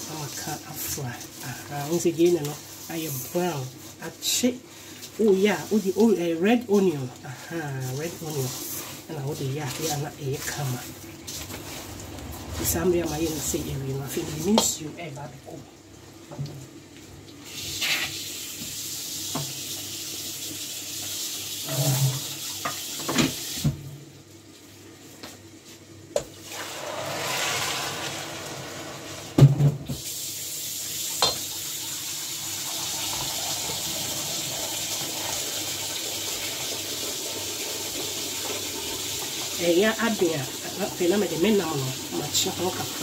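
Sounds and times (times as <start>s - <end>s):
spatula stirring rice: 0.0s - 11.9s
water pouring into pot: 0.0s - 14.9s, 26.3s - 29.4s, 30.0s - 43.0s.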